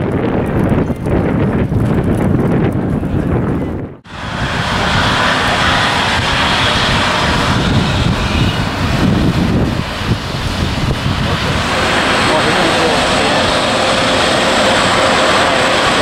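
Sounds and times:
jet engines taxiing: 4.0 - 16.0.

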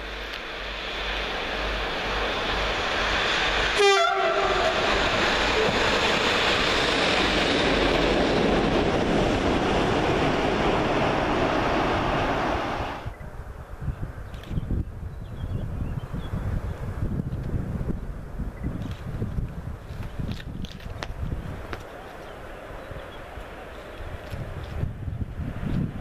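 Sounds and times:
diesel locomotive engine: 0.0 - 26.0
locomotive horn blast: 3.7 - 5.9.

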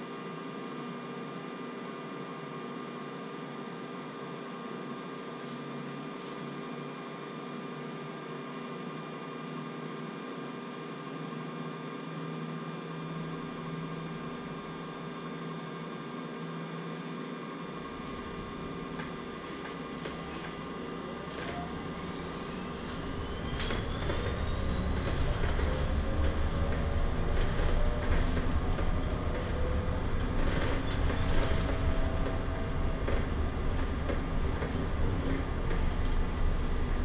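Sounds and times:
bus electrics and air conditioning hum: 0.0 - 37.0
road rumble: 17.9 - 37.0.

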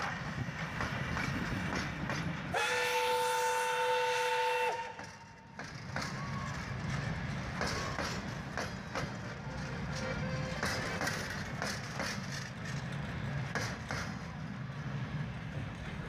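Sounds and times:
train wheels rumbling and clacking: 0.0 - 16.0
locomotive whistle two-tone blast: 2.5 - 5.2.

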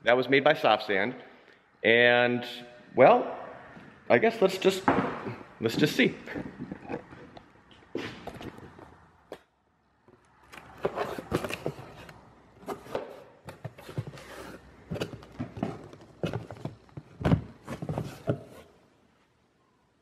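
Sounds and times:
cardboard box rustling: 10.6 - 18.7.

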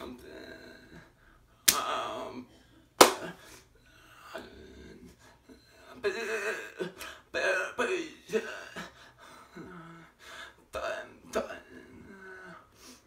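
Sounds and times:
sharp smacks: 3.0 - 3.3.

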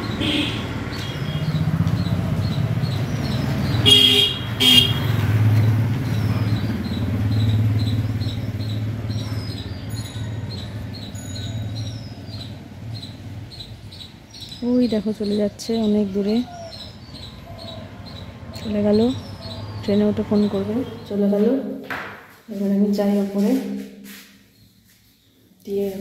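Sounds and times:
motorbike engines passing: 0.0 - 21.8
vehicle horn tooting: 0.2 - 1.4, 3.8 - 5.2.

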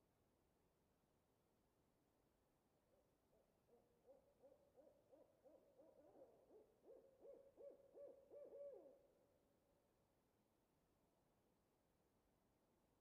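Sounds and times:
owl hooting: 3.7 - 9.1.

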